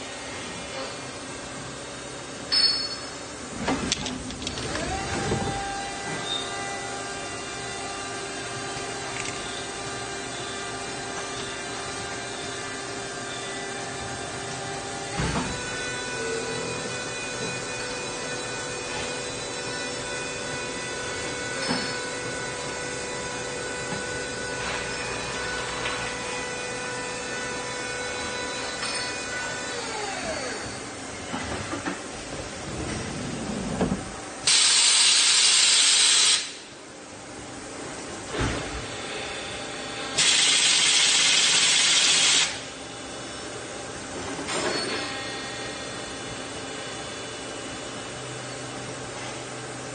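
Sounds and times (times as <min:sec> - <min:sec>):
machine whir with whining tones: 0:00.0 - 0:36.8, 0:38.2 - 0:49.9
loud hiss: 0:34.5 - 0:36.6.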